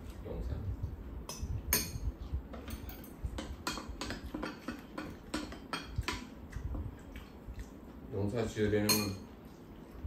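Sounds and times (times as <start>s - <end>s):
utensils clinking on ceramic bowls: 8.8s - 9.3s.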